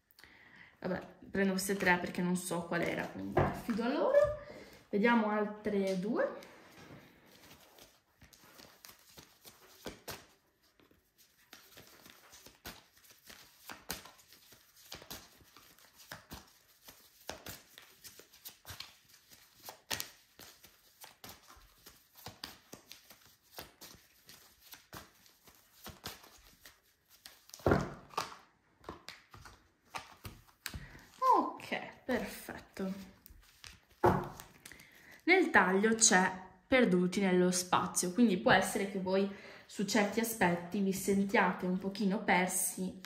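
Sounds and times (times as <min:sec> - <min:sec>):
cards being shuffled: 0:06.4 - 0:31.4, 0:32.1 - 0:35.2.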